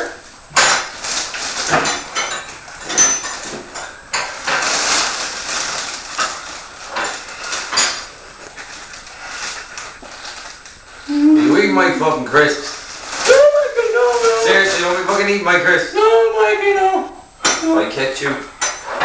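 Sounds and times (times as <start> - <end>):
crisp packet crinkling: 0.8 - 2.2, 4.2 - 11.1, 12.4 - 15.4.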